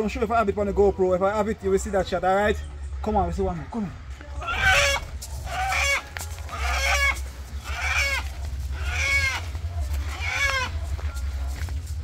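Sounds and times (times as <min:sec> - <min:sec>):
rooster squawking in distress: 0:04.4 - 0:10.8.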